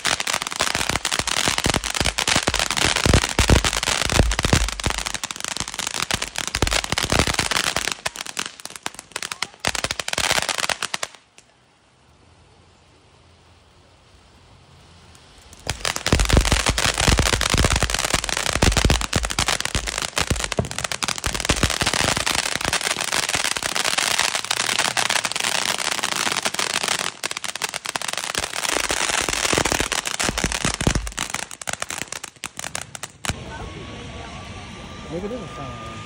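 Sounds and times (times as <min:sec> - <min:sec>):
hiss of spraying sparks: 0:00.0 - 0:10.8, 0:15.1 - 0:32.7
firework crackling pops: 0:00.0 - 0:11.6, 0:15.0 - 0:33.4.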